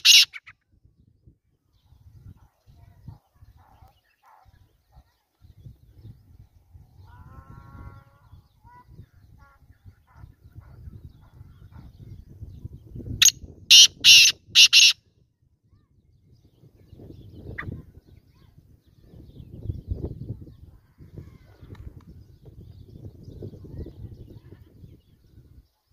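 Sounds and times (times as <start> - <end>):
bird calling harsh grating notes: 0.0 - 0.5, 13.7 - 15.0.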